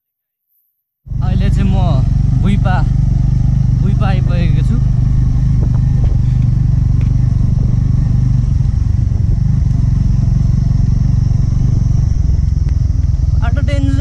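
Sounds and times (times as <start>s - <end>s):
motorcycle engine running: 1.1s - 14.0s
knocks and rattles: 5.4s - 6.3s.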